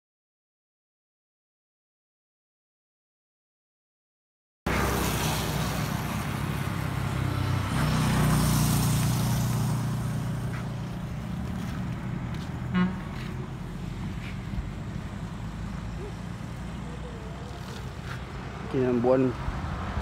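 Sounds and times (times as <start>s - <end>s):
motorcycle engine humming: 4.7s - 20.0s
horn toot: 12.7s - 13.4s.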